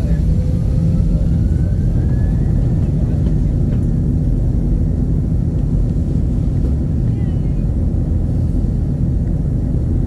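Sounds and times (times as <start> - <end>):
airliner engine rumble in cabin: 0.0 - 10.0.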